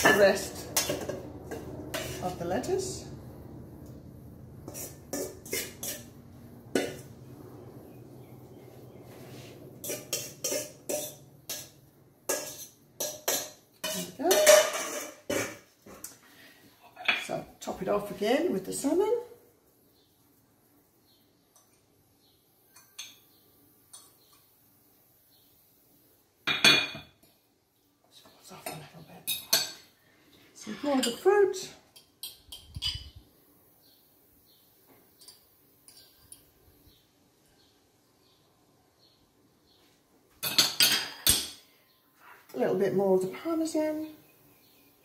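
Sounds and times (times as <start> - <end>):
fork scraping ceramic plates: 0.0 - 2.4, 4.6 - 7.1, 9.3 - 15.6
metal servers clattering in bowl: 9.8 - 15.6.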